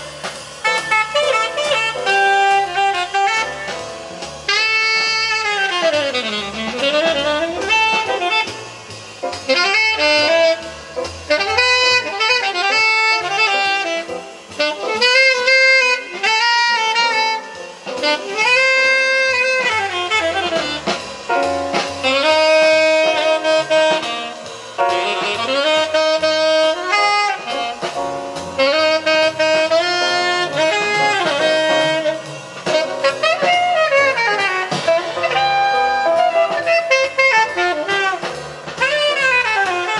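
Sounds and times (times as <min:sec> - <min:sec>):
saxophone melody: 0:00.0 - 0:39.9
walking bass line: 0:02.0 - 0:17.4.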